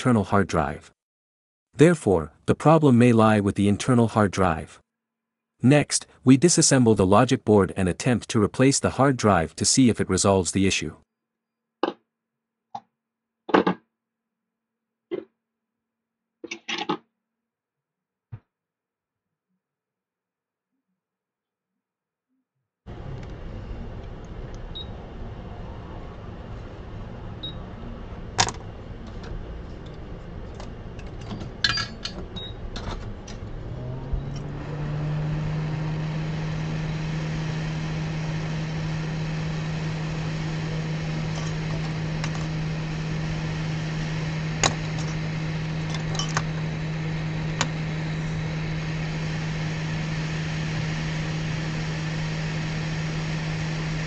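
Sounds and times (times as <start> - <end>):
hot air blower hum and hiss: 22.9 - 54.0.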